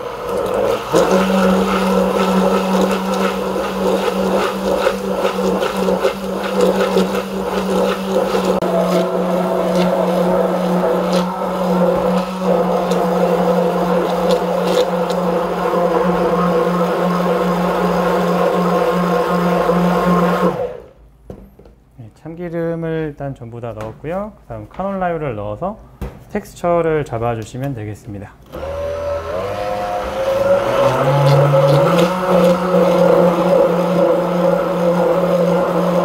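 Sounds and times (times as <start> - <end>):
stick blender humming: 0.0 - 21.0, 28.5 - 36.0.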